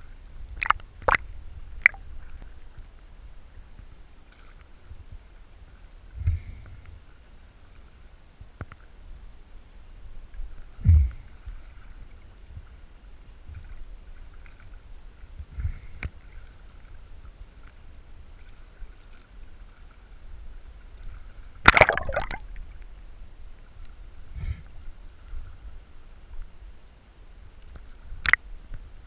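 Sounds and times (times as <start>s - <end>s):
water lapping and gurgling: 10.7s - 22.8s
sharp splash: 21.6s - 22.4s.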